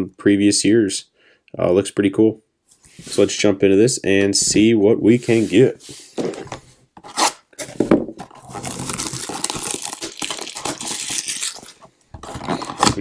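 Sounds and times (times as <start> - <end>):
plastic wrap crackling: 8.3 - 13.0
plastic shrink-wrap ripping: 8.4 - 11.8.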